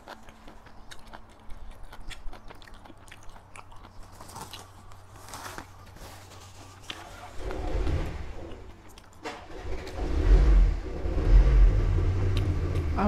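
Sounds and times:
wet chewing mouth sounds: 0.0s - 9.2s.

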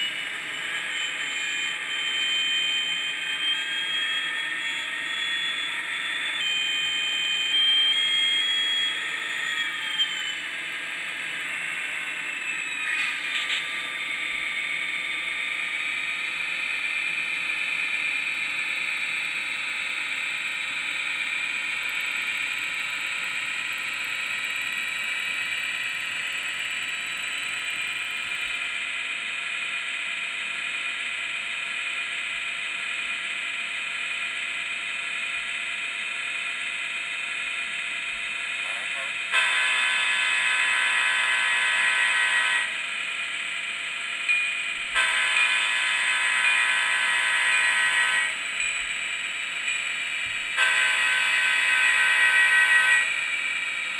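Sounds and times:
diesel engine sounds from speaker: 38.6s - 39.2s
locomotive horn blasts: 39.3s - 42.8s, 45.0s - 48.4s, 50.6s - 53.1s.

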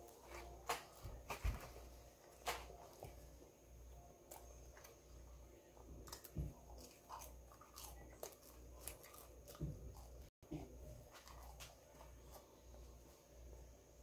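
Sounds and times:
low steady hum: 0.0s - 14.0s
person chewing food: 5.9s - 12.8s.

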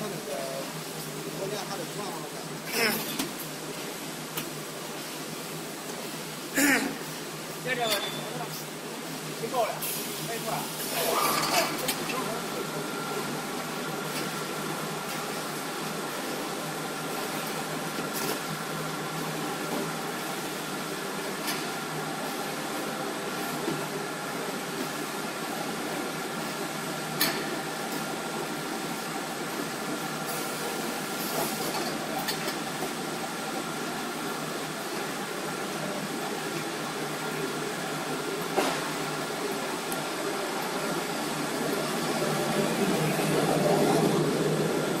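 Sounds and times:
folder-gluer machine running: 27.6s - 45.0s.

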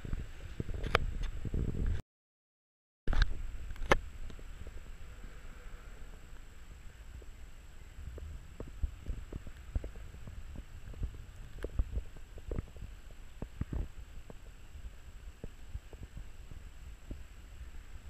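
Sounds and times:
muffled low rumble: 3.1s - 18.0s.

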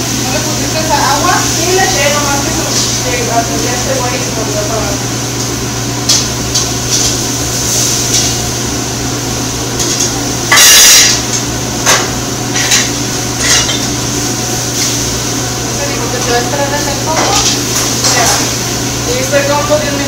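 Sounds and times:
ventilation hood humming: 0.0s - 20.0s
metal utensils clinking on pans: 9.8s - 14.0s, 16.1s - 18.6s.

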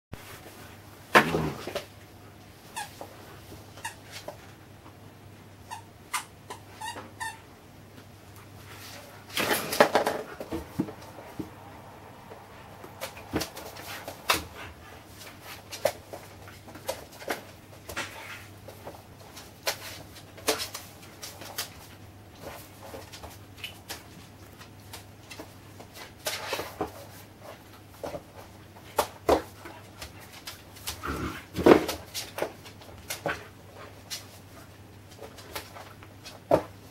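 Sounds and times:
puppy scuffling with toy: 0.2s - 4.8s, 8.2s - 36.9s.

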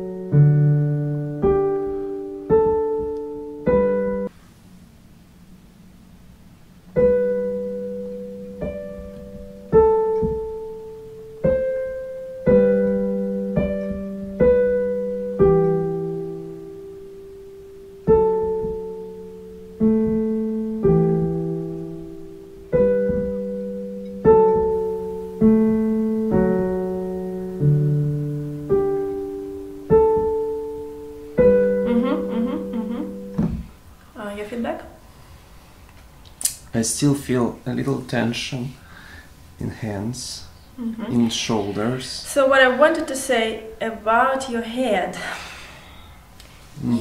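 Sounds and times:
digital piano chords: 0.0s - 4.3s, 6.8s - 33.9s.

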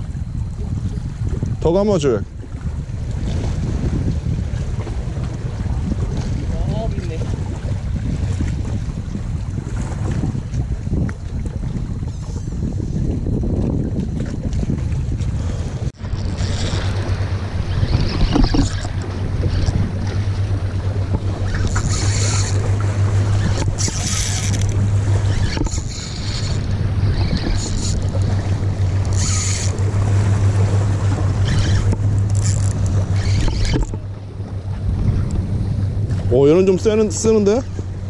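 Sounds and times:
wind rumbling on microphone: 0.0s - 38.0s
low hum: 7.3s - 38.0s
fishing reel drag buzzing: 16.0s - 34.0s.

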